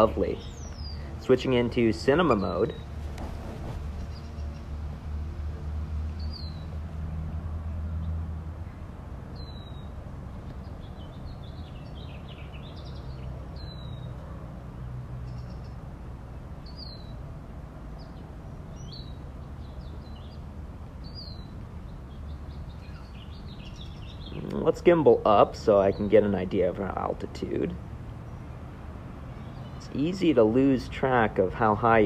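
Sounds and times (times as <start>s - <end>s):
soft bird chirps: 0.0s - 1.4s, 18.0s - 26.2s.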